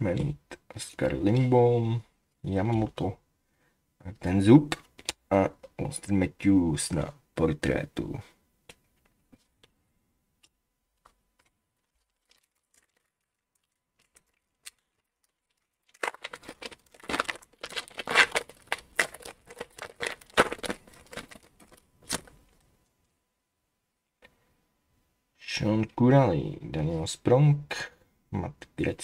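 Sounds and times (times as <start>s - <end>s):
foil wrapper tearing and crinkling: 11.4s - 22.4s.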